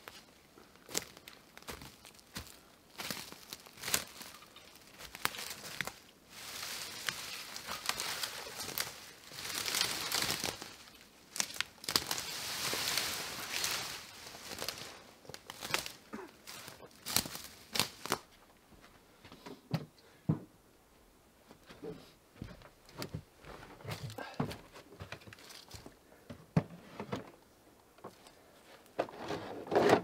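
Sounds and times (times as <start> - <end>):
brush rustling and crackling: 0.0 - 18.5, 25.0 - 26.0
twigs snapping: 0.8 - 18.3.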